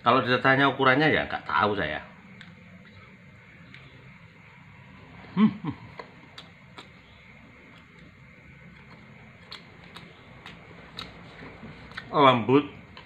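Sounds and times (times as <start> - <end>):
man chewing: 5.7 - 12.2.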